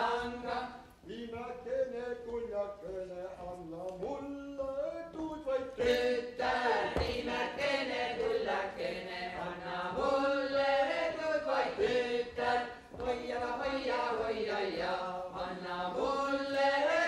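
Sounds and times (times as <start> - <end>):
unaccompanied polyphonic folk singing: 0.0 - 17.0.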